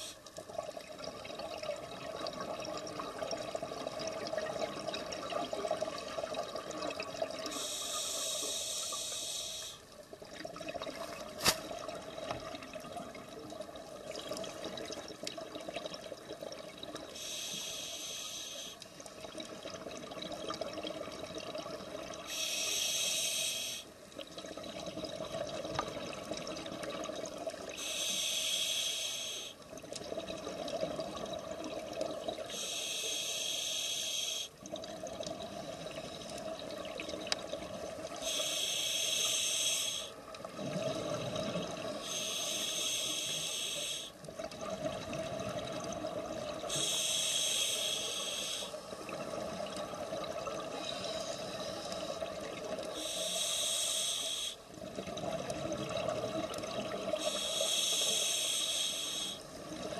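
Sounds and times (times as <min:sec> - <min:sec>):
hissing regulator breaths: 0:07.5 - 0:09.8, 0:17.2 - 0:18.8, 0:22.3 - 0:23.9, 0:27.8 - 0:29.6, 0:32.5 - 0:34.6, 0:38.2 - 0:40.2, 0:41.9 - 0:44.2, 0:46.6 - 0:48.9, 0:50.7 - 0:54.7, 0:57.2 - 0:59.6.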